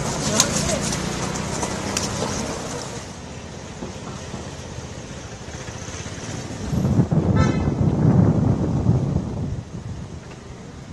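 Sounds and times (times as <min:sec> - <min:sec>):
street traffic noise: 0:00.0 - 0:10.9
vehicle horn toot: 0:07.3 - 0:07.8.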